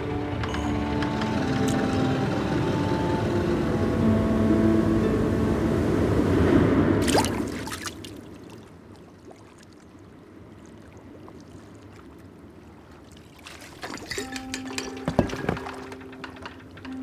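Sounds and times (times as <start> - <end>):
water lapping: 7.0 - 16.8
knocks and clicks: 14.0 - 17.0.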